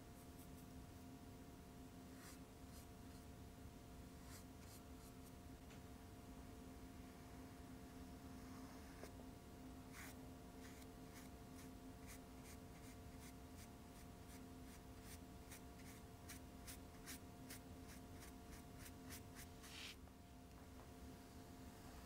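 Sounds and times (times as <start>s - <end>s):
paintbrush dabbing on paper: 2.2s - 3.3s, 4.2s - 5.3s, 9.9s - 20.0s.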